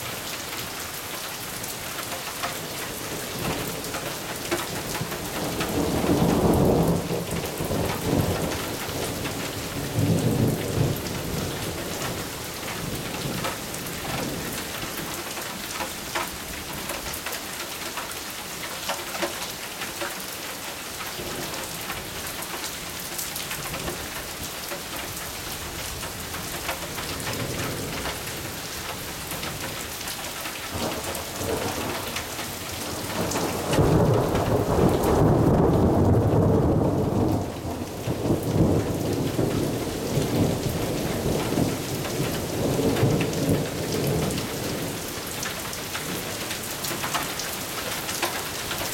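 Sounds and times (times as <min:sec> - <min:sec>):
steady rain falling: 0:00.0 - 0:48.9
thunder rolling: 0:30.7 - 0:41.7.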